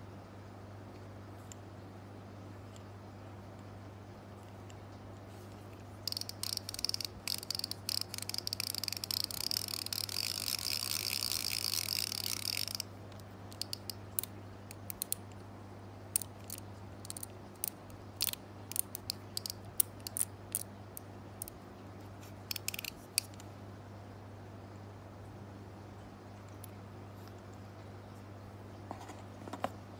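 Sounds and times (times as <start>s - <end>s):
fishing reel drag clicking: 6.0s - 12.9s, 13.5s - 14.3s, 16.2s - 20.7s, 22.5s - 23.4s.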